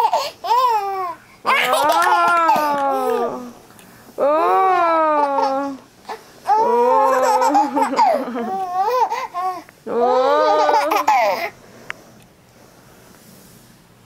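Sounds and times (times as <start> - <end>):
baby babbling and laughing: 0.0 - 3.5, 4.7 - 5.8, 6.5 - 9.6, 10.2 - 11.5.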